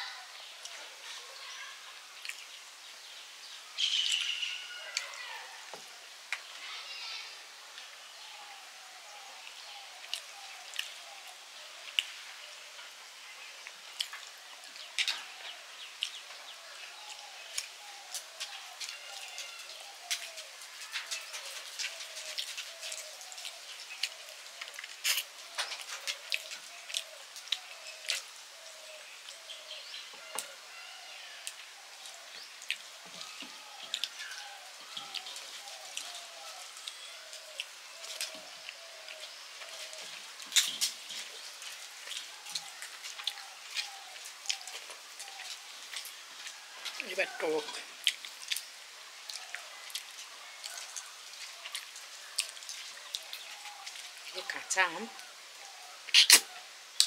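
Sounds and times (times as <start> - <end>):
eating by hand: 13.6 - 16.3, 17.0 - 29.5, 31.4 - 55.3, 56.0 - 57.0.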